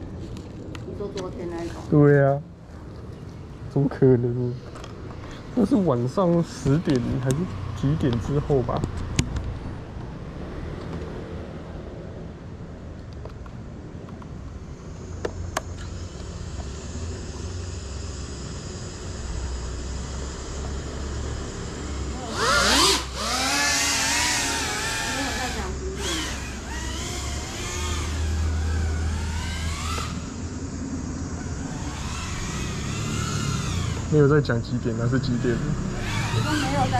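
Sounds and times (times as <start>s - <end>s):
quadcopter motors whining: 4.6s - 9.0s, 14.3s - 36.9s.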